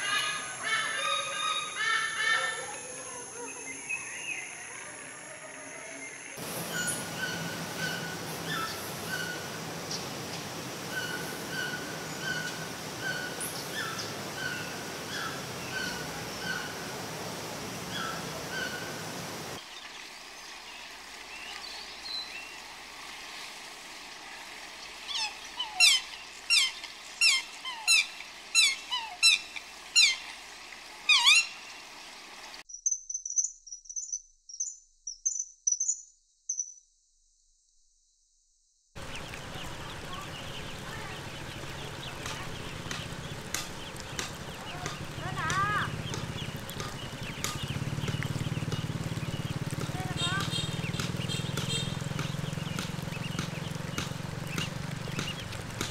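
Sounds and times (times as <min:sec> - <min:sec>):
downward-sweeping bird calls: 0:00.0 - 0:17.2, 0:17.8 - 0:20.5, 0:25.0 - 0:30.3, 0:31.0 - 0:36.8, 0:39.0 - 0:55.9
high thin bird chirps: 0:32.6 - 0:36.9.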